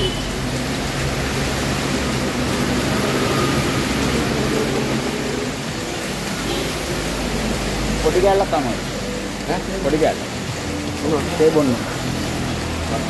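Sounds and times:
rain on a metal roof: 0:00.0 - 0:13.0.

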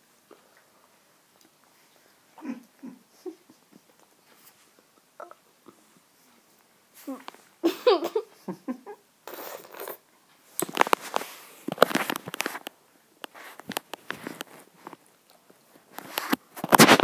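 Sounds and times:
crinkling and rustling: 0:09.6 - 0:17.0.

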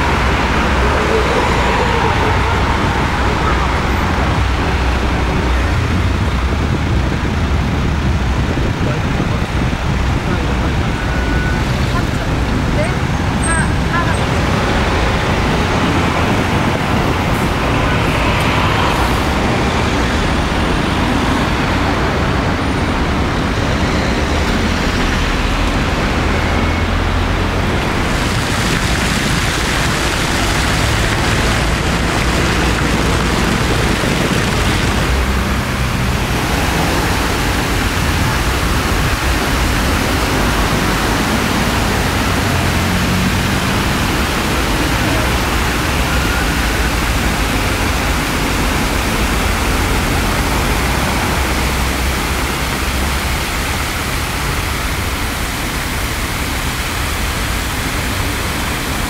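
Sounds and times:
fountain water spray: 0:00.0 - 0:59.0
road traffic passing: 0:00.0 - 0:59.0.

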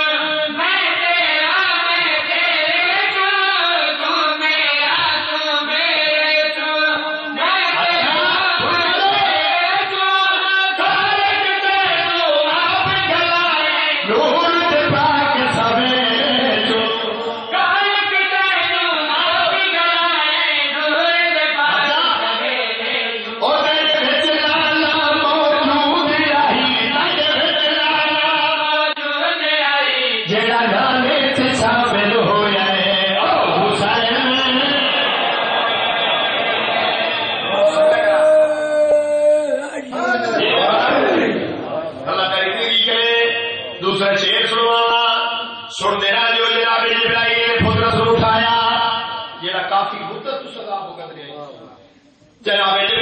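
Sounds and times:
men singing in chorus: 0:37.4 - 0:41.3.

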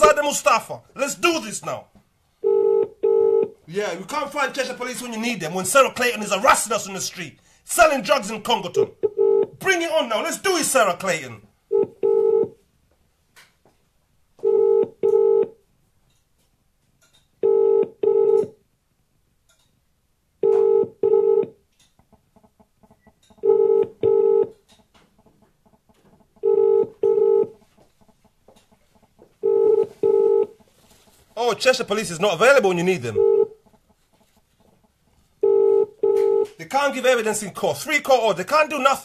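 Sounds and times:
telephone ringing tone: 0:02.4 - 0:03.6, 0:09.0 - 0:09.5, 0:11.7 - 0:12.6, 0:14.4 - 0:15.5, 0:17.4 - 0:18.6, 0:20.4 - 0:21.6, 0:23.4 - 0:24.6, 0:26.4 - 0:27.5, 0:29.4 - 0:30.6, 0:33.0 - 0:33.6, 0:35.4 - 0:36.6.

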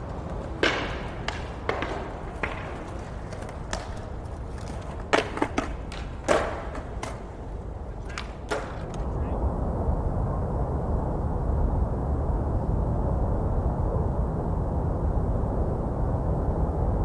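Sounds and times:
skateboards clacking on concrete: 0:00.0 - 0:09.4
city background hum: 0:00.0 - 0:17.0.

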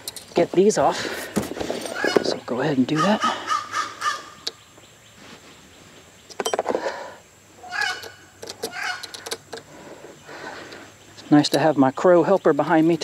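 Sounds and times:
crow cawing: 0:02.9 - 0:04.4, 0:07.6 - 0:09.2.

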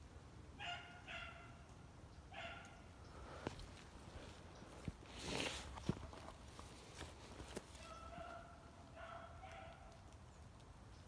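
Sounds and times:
footsteps in dry leaves: 0:03.5 - 0:08.4.

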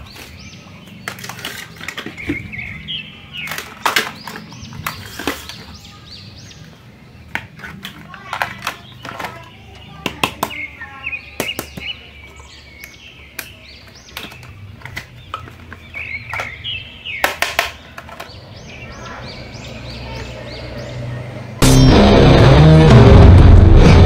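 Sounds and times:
plastic toy clicks and knocks: 0:01.0 - 0:02.5, 0:03.4 - 0:05.8, 0:07.3 - 0:10.6, 0:12.8 - 0:16.6, 0:17.2 - 0:18.4.

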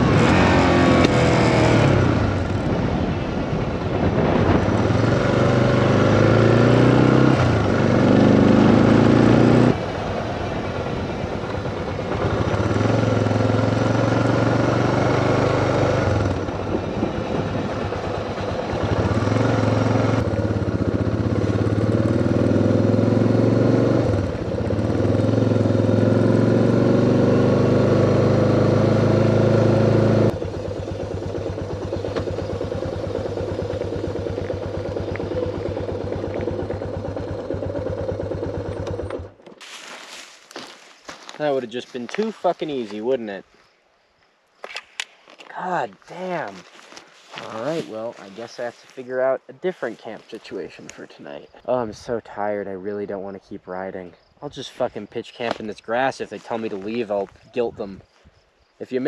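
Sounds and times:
motorcycle engine accelerating: 0:00.0 - 0:42.4.

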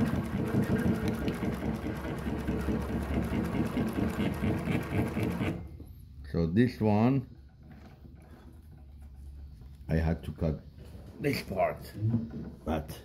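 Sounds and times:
sewing machine stitching: 0:00.0 - 0:05.7.

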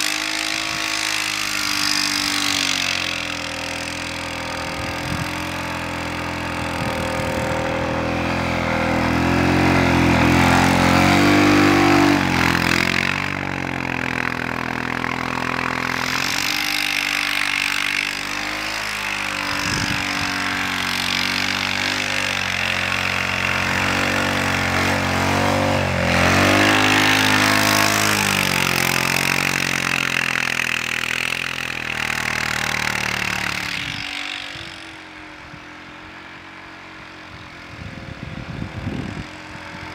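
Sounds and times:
atv engine working hard: 0:00.0 - 0:39.9.

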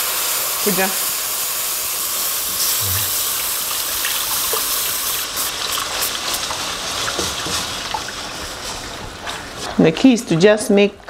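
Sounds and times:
liquid pouring into hot pan hissing: 0:00.0 - 0:09.2.

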